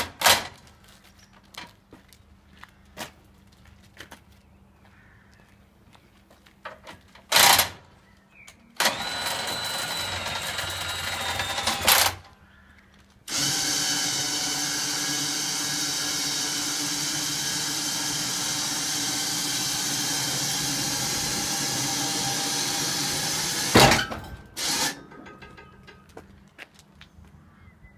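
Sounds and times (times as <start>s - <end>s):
small electric motor whining: 8.8s - 12.2s
loud clunks: 22.8s - 26.0s.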